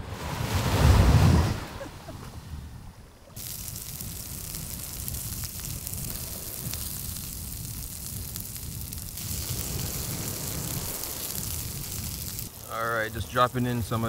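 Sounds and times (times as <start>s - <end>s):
asparagus sizzling in a skillet: 3.4s - 14.0s.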